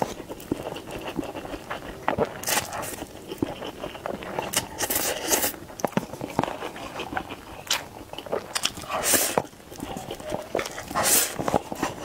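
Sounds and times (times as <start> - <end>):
wet chewing and smacking: 0.0 - 12.0
noodles being slurped: 8.8 - 12.0.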